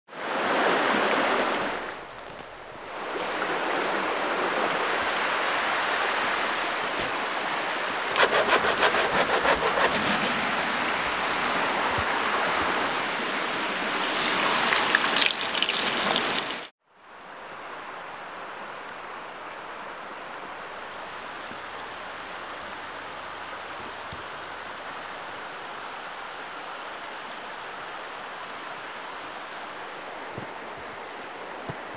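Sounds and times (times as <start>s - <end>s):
water rushing over rocks: 0.1s - 16.7s
hand saw cutting branch: 8.1s - 11.0s.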